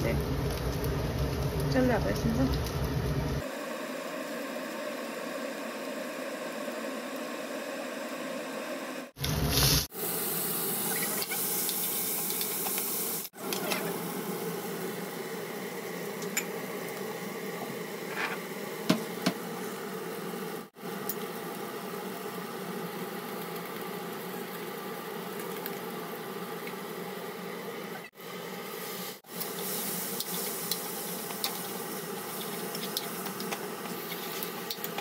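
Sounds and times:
food sizzling in hot oil: 0.0 - 35.0.

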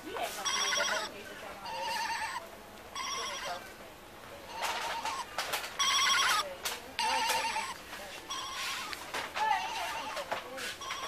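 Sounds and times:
toy clicks and handling noise: 4.6 - 7.7.

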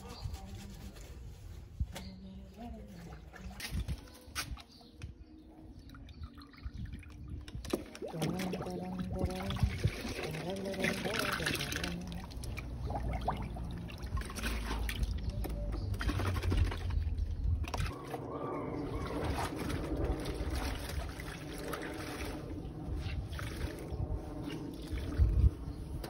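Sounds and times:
water trickling and pouring: 5.6 - 18.0, 19.0 - 25.6
water sloshing: 5.7 - 25.4.

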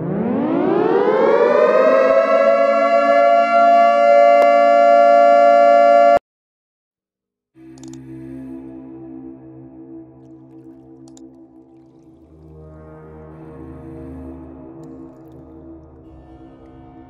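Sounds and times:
siren winding up and wailing: 0.0 - 6.2.

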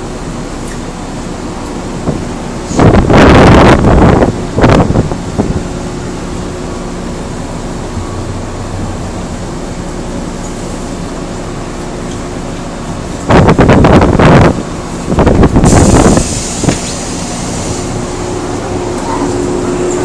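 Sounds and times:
train interior rumble and hum: 0.0 - 20.0.

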